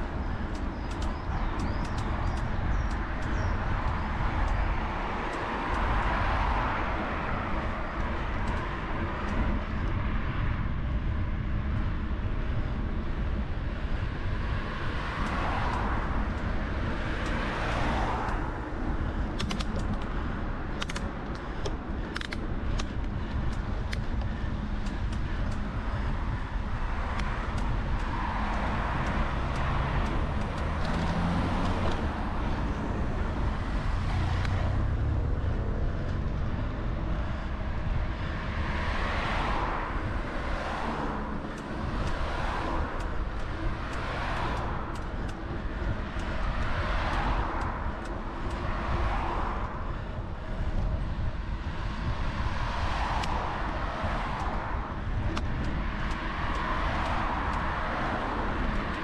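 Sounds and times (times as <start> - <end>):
cars passing: 0.0 - 59.0
low traffic rumble: 0.0 - 59.0
sharp clicks: 0.5 - 6.1, 19.2 - 26.1, 41.4 - 49.7, 54.0 - 59.0.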